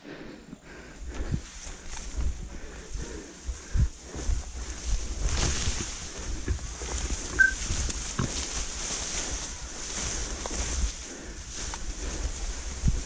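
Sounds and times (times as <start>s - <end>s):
wind rumbling on microphone: 0.5s - 13.0s
short high chirp: 7.4s - 7.6s.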